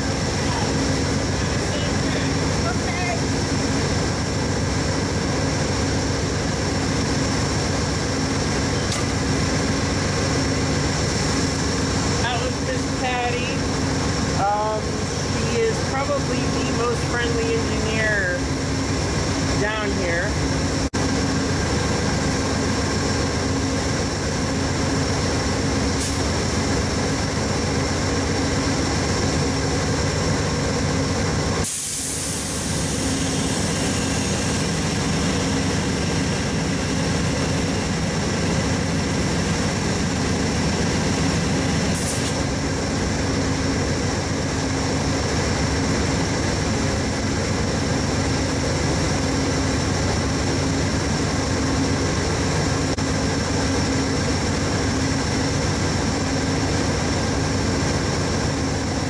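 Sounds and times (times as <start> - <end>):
diesel locomotive idling: 0.0 - 59.0
air hiss: 31.6 - 34.8, 41.9 - 42.4.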